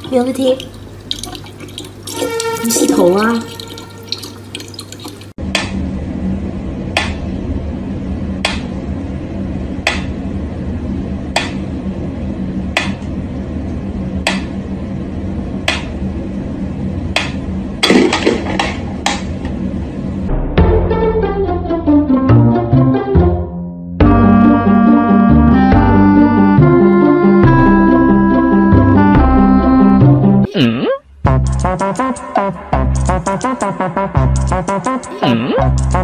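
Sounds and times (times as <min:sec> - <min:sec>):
low steady hum: 0:00.0 - 0:20.4.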